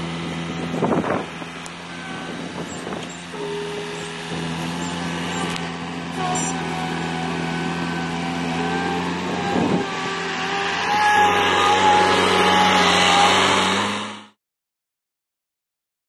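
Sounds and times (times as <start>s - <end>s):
skid steer engine running: 0.0s - 14.4s.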